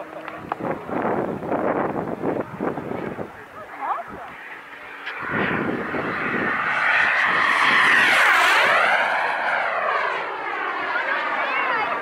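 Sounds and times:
model airplane engine fly-by: 0.0 - 12.0.

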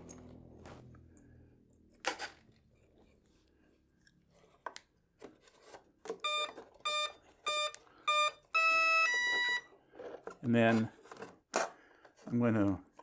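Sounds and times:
short electronic beeps: 6.2 - 9.7.

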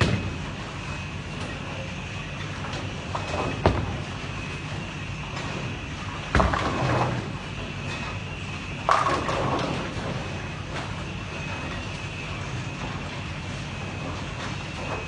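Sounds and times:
bowling balls rolling on lanes: 5.2 - 12.0
bowling balls crashing into pins: 6.3 - 7.3.

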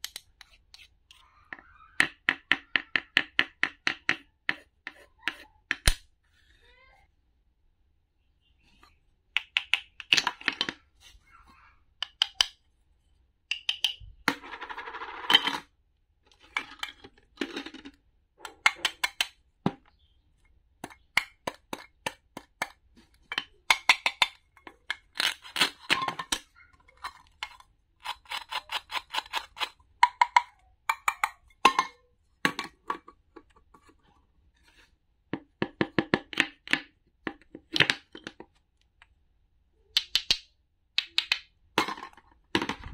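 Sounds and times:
toy knife clacking on board: 12.0 - 12.6, 13.5 - 14.0, 20.8 - 32.0.

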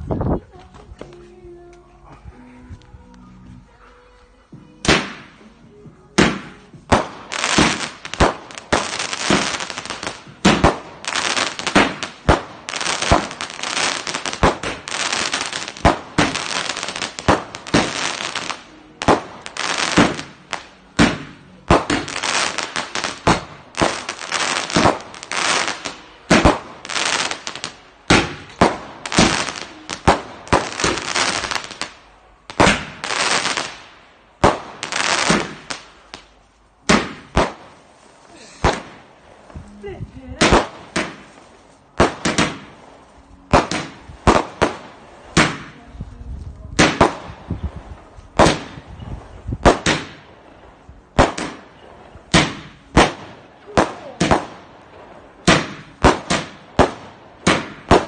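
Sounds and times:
fireworks launching and bursting: 4.8 - 58.0
firework hiss and crackle: 6.2 - 50.4.

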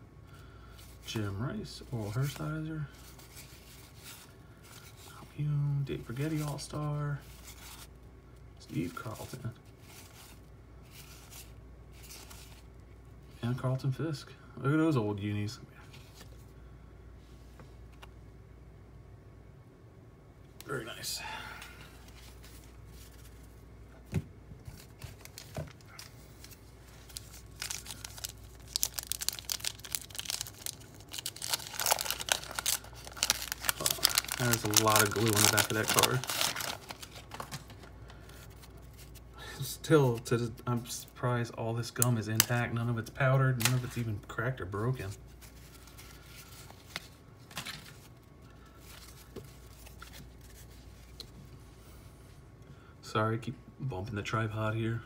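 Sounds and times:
cards rustling: 8.7 - 12.7, 21.9 - 23.6, 24.6 - 39.2, 43.5 - 44.1, 44.8 - 51.4
wax paper wrapper tearing and crinkling: 24.9 - 39.2.

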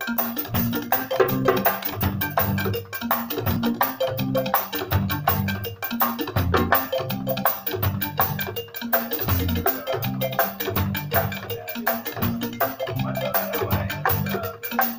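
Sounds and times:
djembe hand drum: 0.0 - 14.9
drum kit rhythm: 0.0 - 14.9
low melodic bass: 0.6 - 2.8, 3.5 - 5.7, 6.4 - 8.6, 9.3 - 11.5, 12.2 - 14.4.

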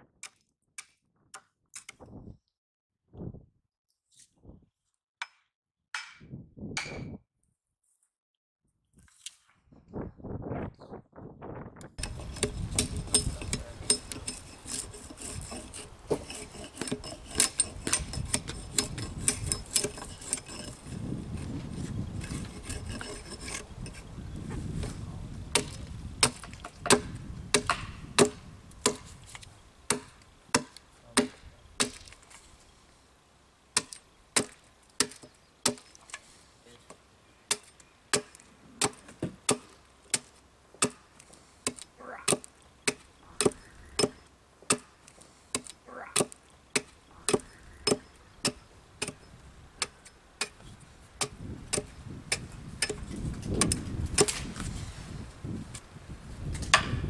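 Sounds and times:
sharp blows on wood: 12.0 - 20.8, 25.5 - 32.2, 37.5 - 54.5, 56.6 - 57.0
rasping on wood: 12.0 - 20.9, 22.2 - 23.7.

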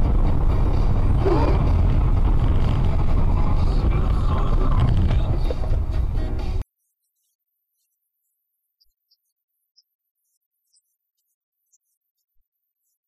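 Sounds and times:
car engine rumble: 0.0 - 6.6
tyres on road: 0.0 - 6.6.

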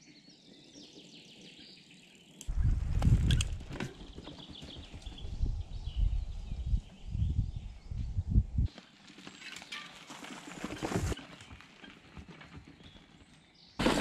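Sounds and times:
bike rattles and clicks: 2.4 - 5.4
mountain bike riding past: 9.0 - 13.2, 13.8 - 14.0.

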